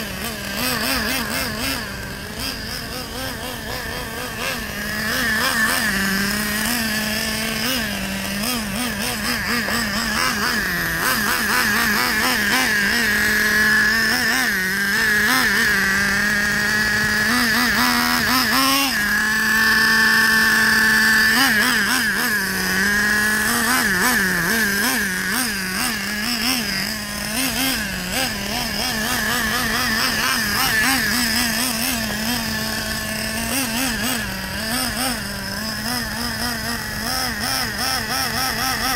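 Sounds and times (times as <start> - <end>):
model engine revving: 0.0 - 38.9.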